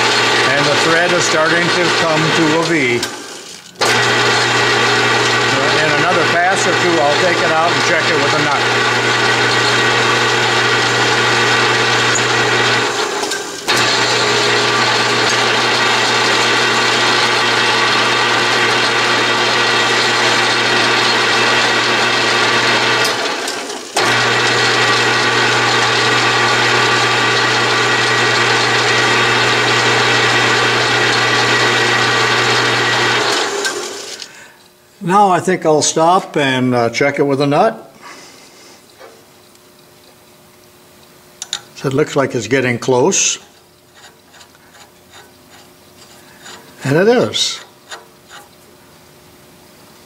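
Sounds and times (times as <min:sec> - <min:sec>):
lathe machine hum and whine: 0:00.0 - 0:34.3.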